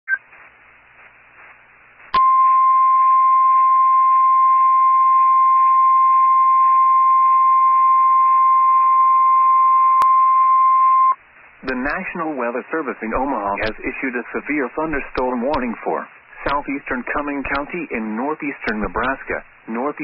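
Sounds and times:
faint radio static: 0:00.1 - 0:02.4, 0:11.0 - 0:20.0.

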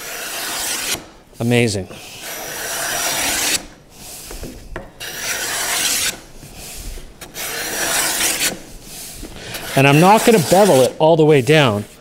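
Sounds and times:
hand plane shaving wood: 0:00.0 - 0:01.0, 0:01.9 - 0:04.4, 0:05.0 - 0:12.0.

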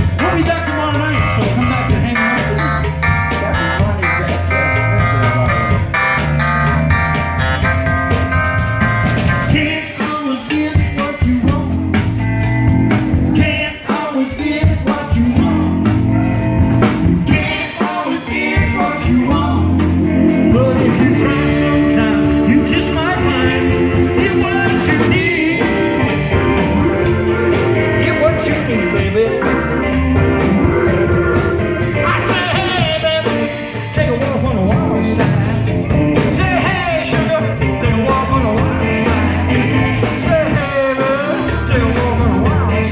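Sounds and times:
person singing: 0:00.0 - 0:06.2, 0:09.2 - 0:12.1, 0:13.2 - 0:42.9
live rock band playing: 0:00.0 - 0:42.9.

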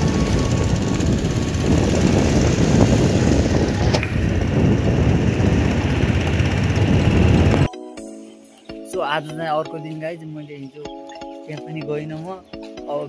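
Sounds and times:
motorcycle engine and wind rumble: 0:00.0 - 0:07.7.

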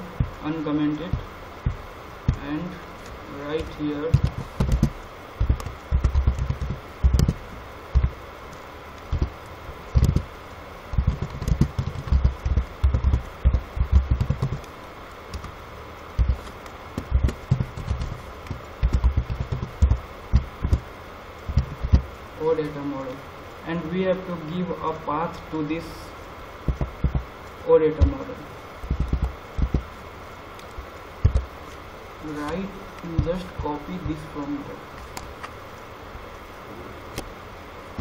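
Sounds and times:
computer keyboard typing: 0:03.5 - 0:08.2, 0:09.0 - 0:10.3, 0:10.9 - 0:14.7, 0:15.3 - 0:15.6, 0:16.2 - 0:20.9, 0:21.5 - 0:22.1, 0:28.8 - 0:29.9.

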